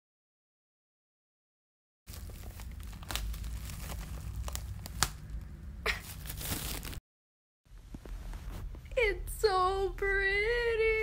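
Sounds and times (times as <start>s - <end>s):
plastic wrap crinkling and tearing: 2.1s - 7.0s.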